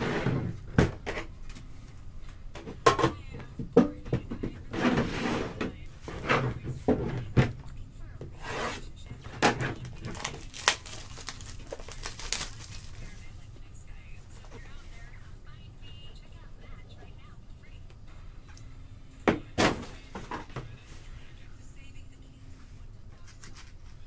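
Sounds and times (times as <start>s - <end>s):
cardboard rubbing and scraping: 4.7s - 7.3s, 8.3s - 12.1s.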